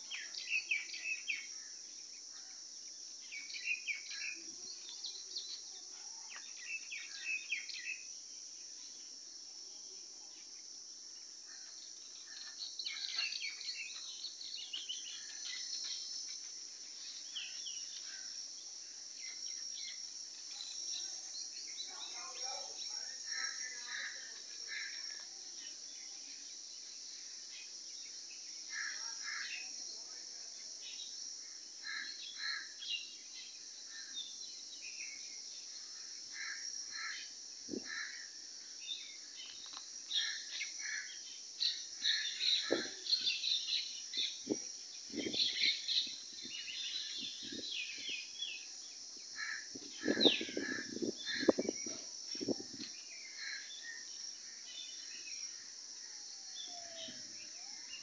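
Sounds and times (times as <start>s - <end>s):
high insect drone: 0.0s - 58.0s
birds chirping: 38.9s - 55.2s.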